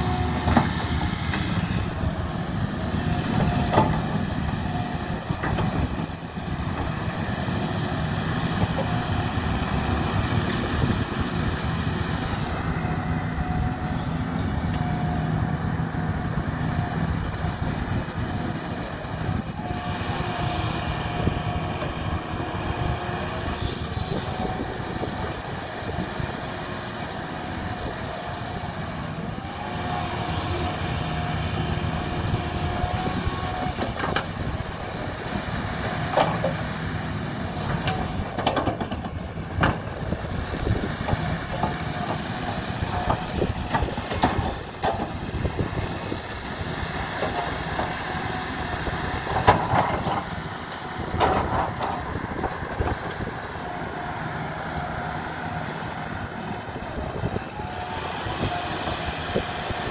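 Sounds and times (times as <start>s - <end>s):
excavator diesel engine under load: 0.0s - 59.9s.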